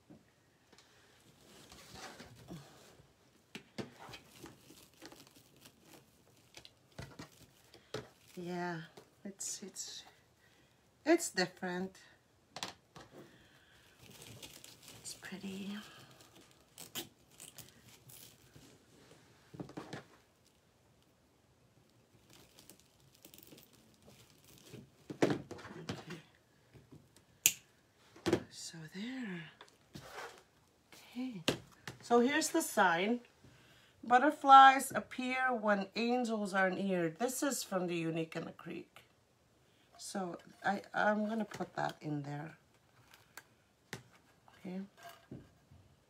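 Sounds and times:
stiff mesh petals rustling: 0:03.8 - 0:09.0, 0:13.6 - 0:19.5, 0:22.1 - 0:25.1.

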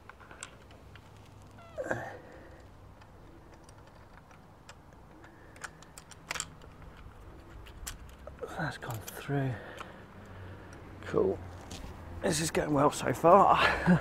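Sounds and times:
light clicks and taps of parts: 0:00.0 - 0:01.6, 0:02.5 - 0:12.0
handling rustle: 0:00.0 - 0:10.9, 0:11.5 - 0:12.8.

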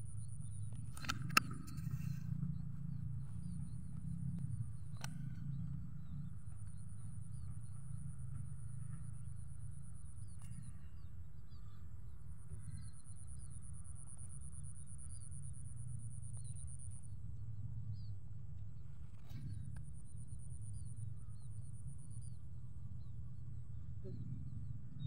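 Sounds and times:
faint bird chirps: 0:19.0 - 0:25.0.

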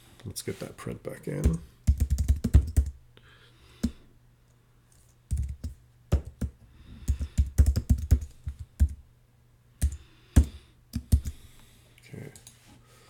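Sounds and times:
typing on computer keyboard: 0:01.4 - 0:03.0, 0:05.3 - 0:09.0, 0:09.8 - 0:11.4.

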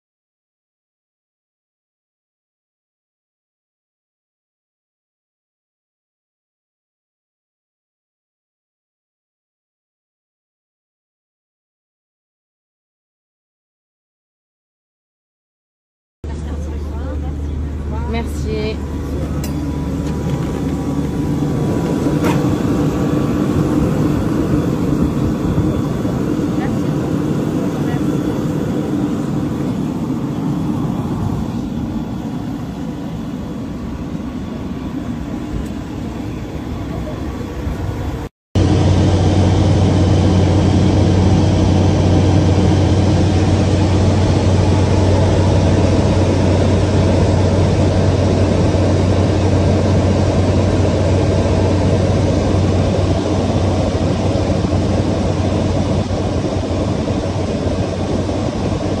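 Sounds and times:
propeller plane engine drone: 0:16.2 - 0:59.0
steady engine noise: 0:16.2 - 0:59.0.

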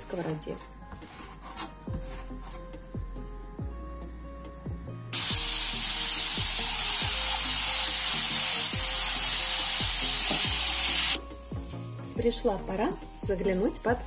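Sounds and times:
bacon sizzling in a frying pan: 0:05.1 - 0:13.8.

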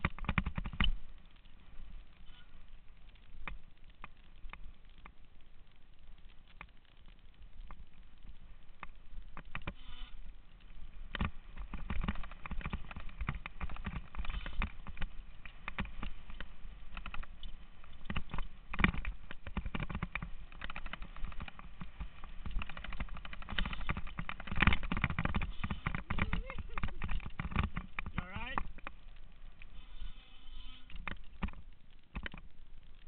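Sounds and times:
mountain bike rattling and knocking: 0:00.0 - 0:01.2, 0:10.8 - 0:29.2, 0:30.9 - 0:32.6.

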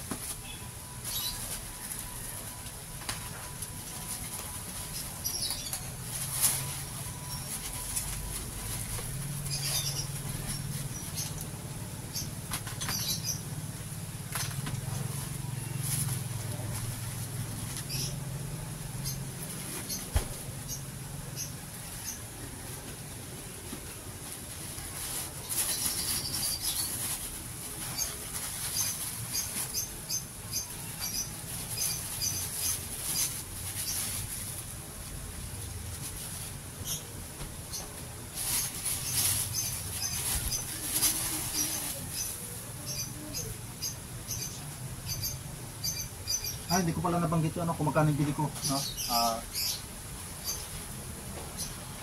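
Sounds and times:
plastic wrapping crinkling: 0:00.0 - 0:11.4, 0:24.2 - 0:30.2, 0:38.2 - 0:42.4.

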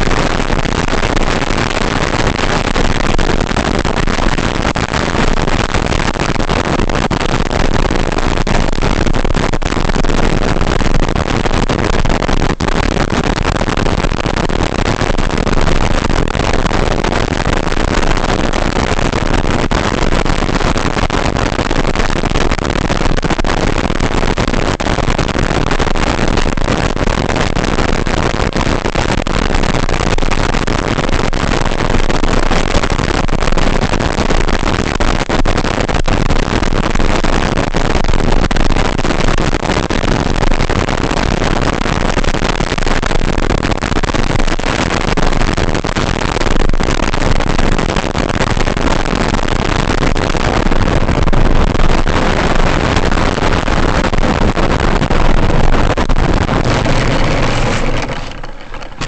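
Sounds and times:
loud rushing wind noise: 0:50.4 - 0:59.0.

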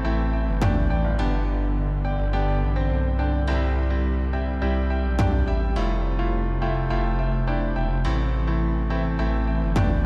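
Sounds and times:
background music with sustained chords: 0:00.0 - 0:10.0.

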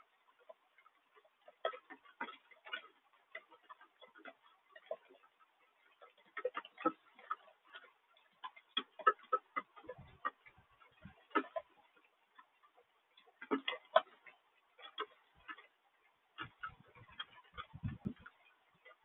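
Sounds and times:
raindrops ticking: 0:00.0 - 0:19.0.

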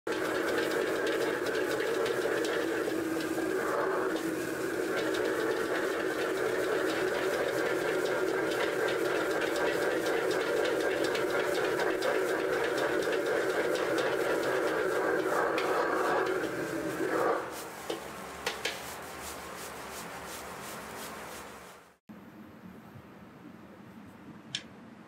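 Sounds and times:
gas burner rushing: 0:00.1 - 0:18.8
metal spatula scraping pan: 0:00.1 - 0:18.8.

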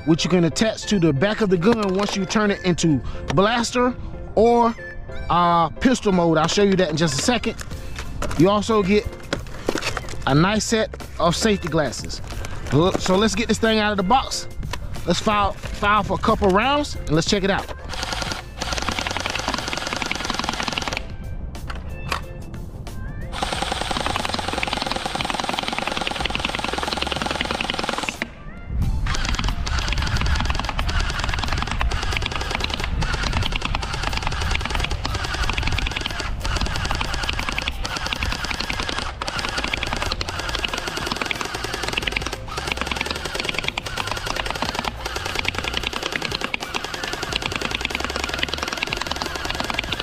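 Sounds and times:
gel blaster firing bursts: 0:17.9 - 0:21.1, 0:23.4 - 0:28.3, 0:29.1 - 0:50.0.

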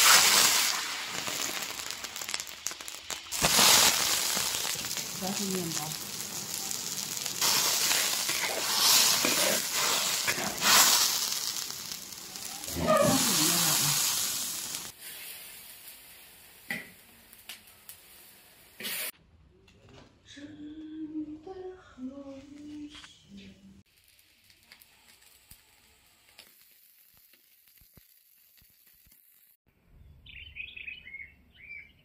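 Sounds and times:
greens sizzling in boiling water: 0:00.0 - 0:19.1, 0:23.9 - 0:29.6.

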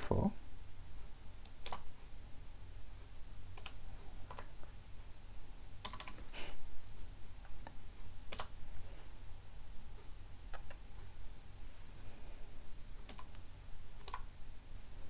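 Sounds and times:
computer keyboard keystrokes: 0:01.4 - 0:01.9, 0:03.5 - 0:04.6, 0:05.8 - 0:06.3, 0:07.5 - 0:08.6, 0:10.5 - 0:10.8, 0:13.0 - 0:13.4, 0:14.0 - 0:14.3.

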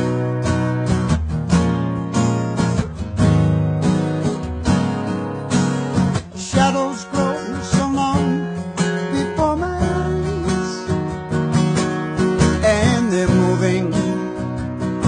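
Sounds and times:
acoustic guitar strumming: 0:00.0 - 0:15.0
man singing: 0:06.2 - 0:11.0, 0:12.4 - 0:15.0.

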